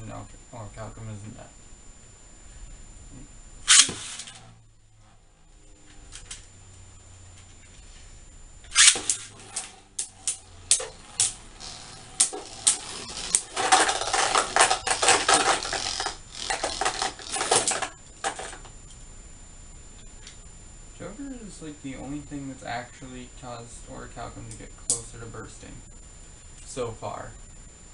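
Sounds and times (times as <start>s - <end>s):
spinning tops clashing: 8.7s - 18.6s.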